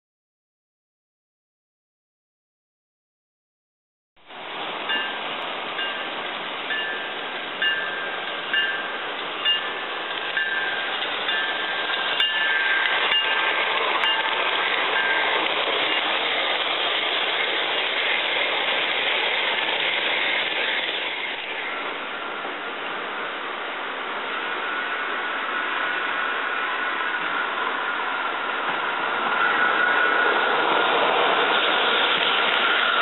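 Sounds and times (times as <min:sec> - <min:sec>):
train rushing past: 0:04.2 - 0:33.0
bell dinging: 0:06.7 - 0:13.4.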